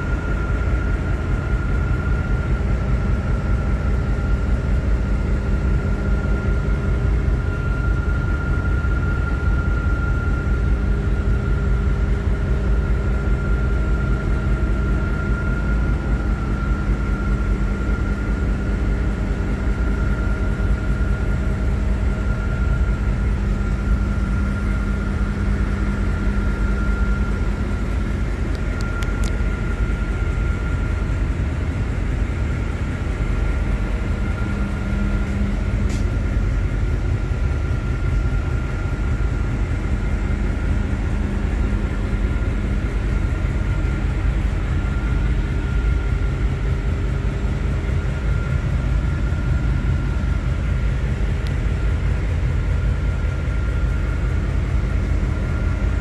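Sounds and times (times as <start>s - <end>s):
constant high whine: 0.0s - 56.0s
engine room machinery rumble: 0.0s - 56.0s.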